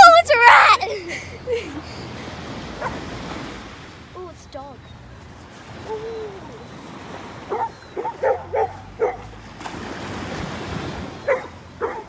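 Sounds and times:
surf washing: 0:00.0 - 0:12.0
small dog barking: 0:02.8 - 0:03.0, 0:07.5 - 0:09.3, 0:11.2 - 0:12.0.

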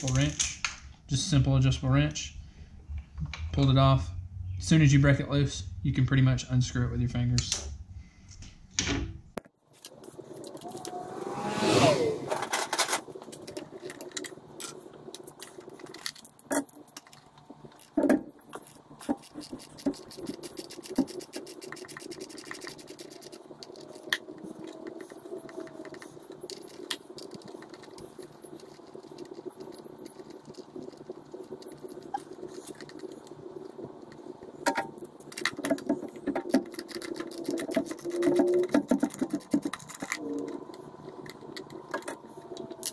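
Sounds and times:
low hum: 0:09.2 - 0:42.9.

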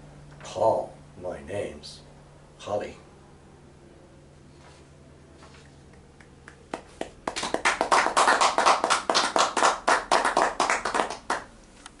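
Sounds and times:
hand clapping: 0:05.8 - 0:11.5.

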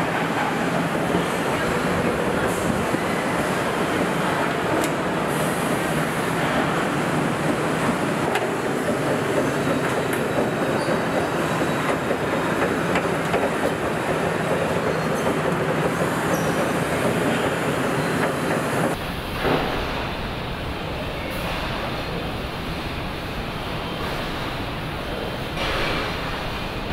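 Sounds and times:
machinery and conveyor noise: 0:00.0 - 0:26.9.

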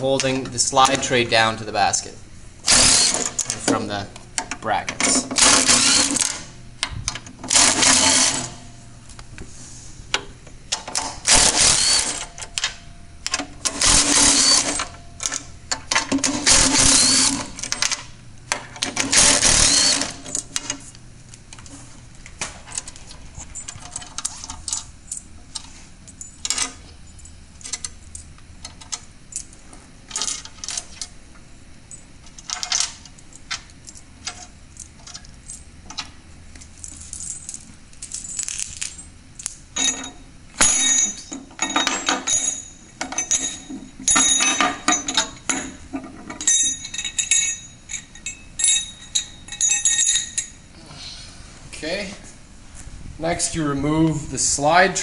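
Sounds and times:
cordless driver running out bolts: 0:05.4 - 0:06.4, 0:07.5 - 0:08.6, 0:11.3 - 0:12.2, 0:13.7 - 0:14.9, 0:16.2 - 0:17.7, 0:19.0 - 0:20.2.

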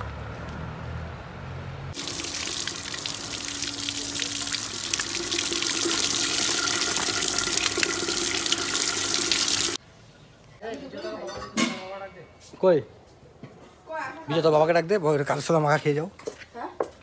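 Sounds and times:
water gushing from tap: 0:02.0 - 0:09.8
water splashing into concrete basin: 0:02.0 - 0:09.8.

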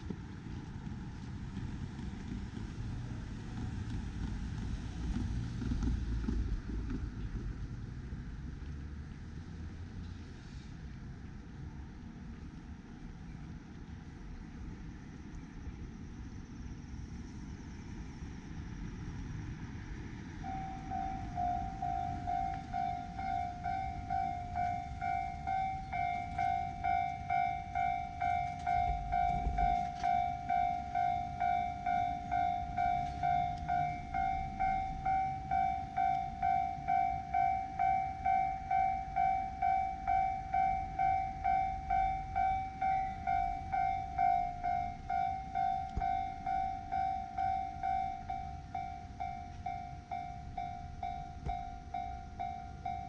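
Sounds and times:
level-crossing alarm dinging: 0:20.3 - 0:53.0.

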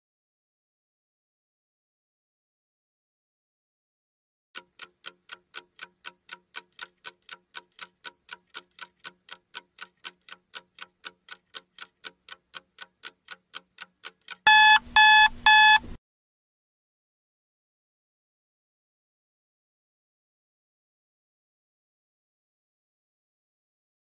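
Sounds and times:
clock ticking: 0:04.6 - 0:15.9
loud alarm beeps: 0:14.5 - 0:15.9.

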